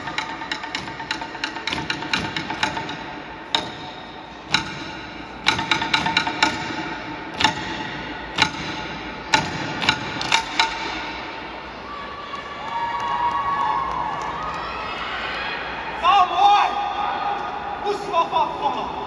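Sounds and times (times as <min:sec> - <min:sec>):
sharp percussion strikes: 0:00.0 - 0:11.8.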